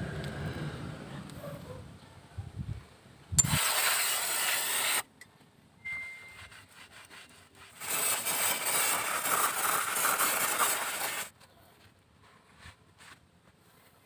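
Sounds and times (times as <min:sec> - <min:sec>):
aerosol spray hissing: 0:03.4 - 0:05.0, 0:07.8 - 0:11.3
rag wiping: 0:06.3 - 0:11.3.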